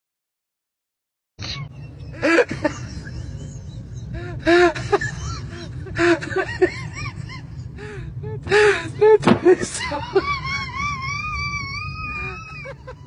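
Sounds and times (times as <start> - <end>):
metro train rumble: 1.7 - 13.0
baby-like crying: 10.4 - 13.0.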